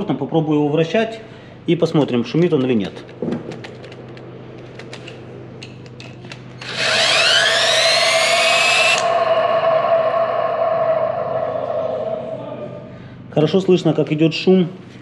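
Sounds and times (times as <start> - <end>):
cordless drill whining: 6.6 - 9.4.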